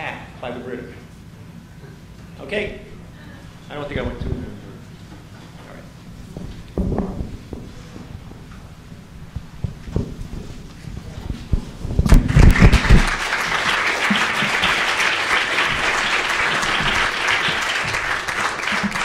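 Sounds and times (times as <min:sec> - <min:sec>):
audience applauding: 0:12.1 - 0:19.0.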